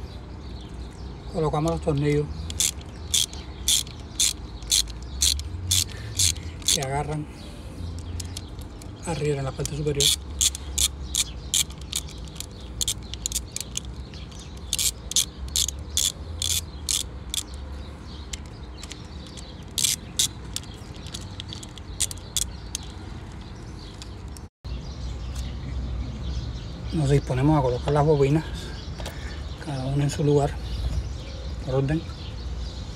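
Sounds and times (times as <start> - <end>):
socket ratchet clicking: 1.7 - 6.9, 7.9 - 9.0, 9.6 - 17.6, 18.3 - 24.4.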